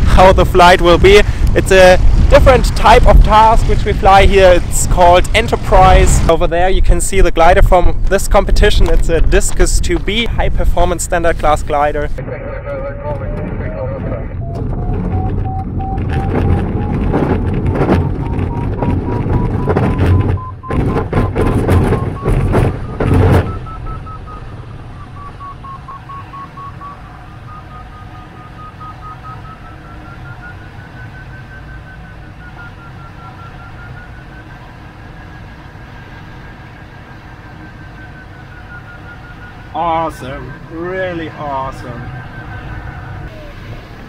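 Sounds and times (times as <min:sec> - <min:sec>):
rush of air past cockpit: 0:00.0 - 0:07.1
variometer tone and beeps: 0:13.0 - 0:43.6
wheel rumbling and bumping on grass: 0:14.4 - 0:24.3.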